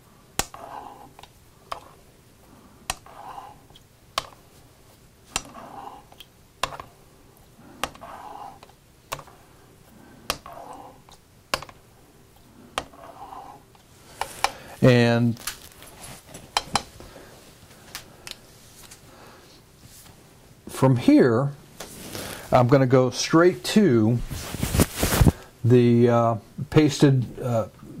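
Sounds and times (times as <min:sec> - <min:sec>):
razor swishing on water stone: 0:00.5 - 0:02.0, 0:02.9 - 0:03.8, 0:05.4 - 0:06.2, 0:07.8 - 0:08.7, 0:10.4 - 0:11.1, 0:12.8 - 0:14.5.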